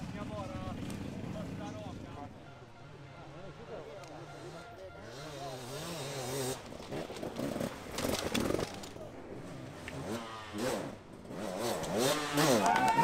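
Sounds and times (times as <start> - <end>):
motorcycle engine revving: 0.0 - 2.4, 4.1 - 13.0.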